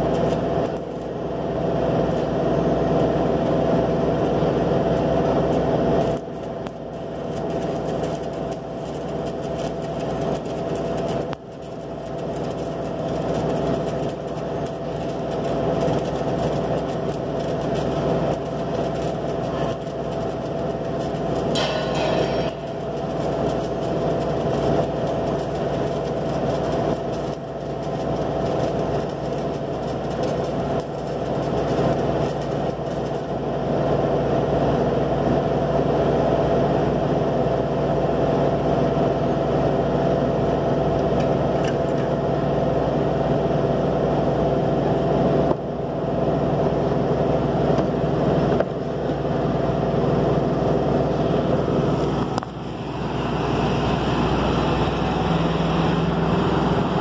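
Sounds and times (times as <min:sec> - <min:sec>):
welding arc crackling hiss: 0:00.0 - 0:35.4, 0:49.0 - 0:57.0
steady hum: 0:00.0 - 0:57.0.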